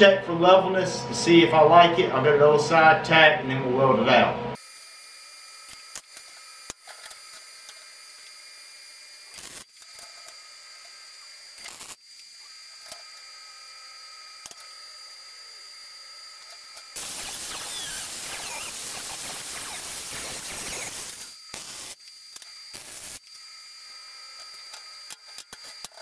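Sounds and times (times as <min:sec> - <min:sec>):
crackling welding arc: 0:04.6 - 0:12.4, 0:17.0 - 0:23.3
angle grinder grinding steel: 0:17.0 - 0:22.0
faint hiss: 0:17.0 - 0:22.0.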